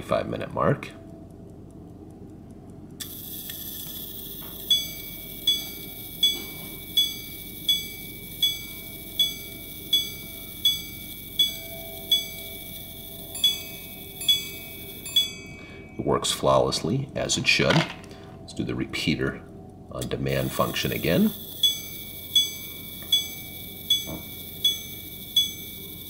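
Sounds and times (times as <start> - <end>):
watch striking train whirring: 2.7 - 17.5, 20.0 - 26.0
hammer ringing on wire gong: 4.4 - 16.6, 20.5 - 26.0.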